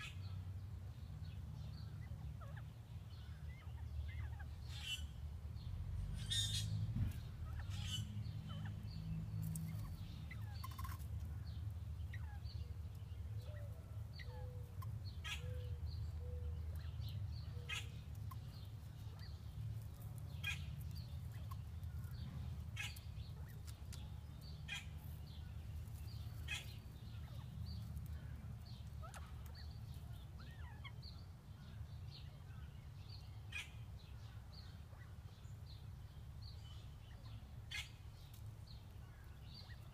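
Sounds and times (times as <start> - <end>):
soft bird calls: 0.0 - 39.9
steady low rumble: 0.5 - 39.9
quail scratching in dry leaves: 6.2 - 31.0.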